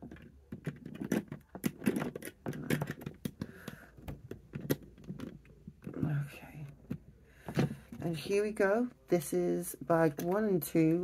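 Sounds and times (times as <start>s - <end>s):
plastic bricks clicking: 0.0s - 8.0s.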